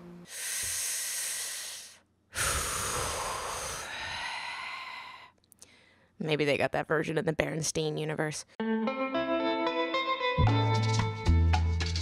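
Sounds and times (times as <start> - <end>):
person sighing: 0.3 - 5.9.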